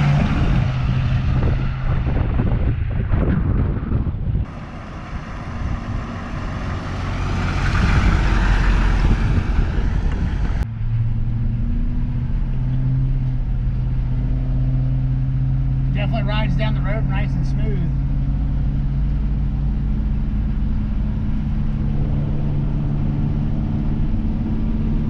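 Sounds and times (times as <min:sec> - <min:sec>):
diesel truck driving away: 0:00.0 - 0:02.7, 0:04.4 - 0:25.0
wind on microphone: 0:00.0 - 0:10.7
engine drone inside cab: 0:04.4 - 0:25.0.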